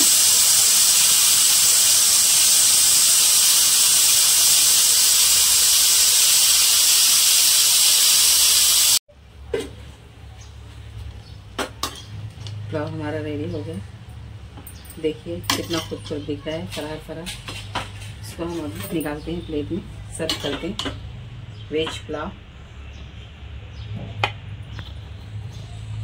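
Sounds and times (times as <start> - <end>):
steam hissing from pressure cooker: 0.0 - 9.0.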